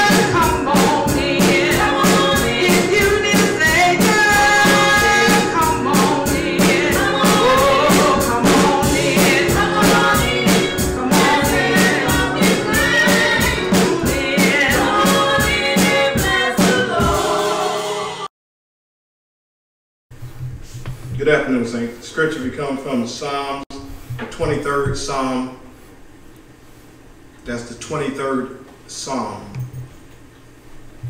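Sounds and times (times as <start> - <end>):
band with steady drum beat: 0.0 - 17.8
voices singing gospel song: 0.0 - 18.3.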